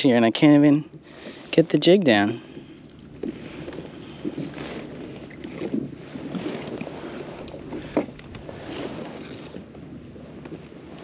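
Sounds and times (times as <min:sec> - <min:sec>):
light wind: 0:00.0 - 0:11.0
water lapping against hull: 0:00.0 - 0:11.0.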